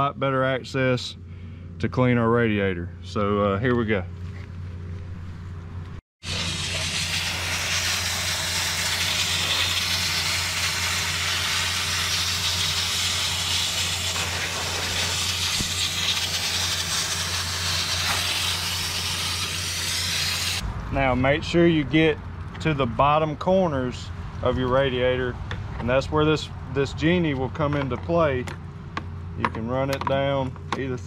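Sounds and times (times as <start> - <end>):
water spraying from hose wand: 6.2 - 20.6.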